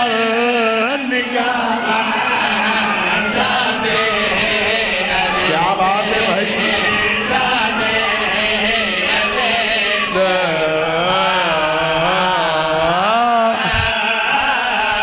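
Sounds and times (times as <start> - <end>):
men's chorus chanting amplified: 0.0 - 15.0.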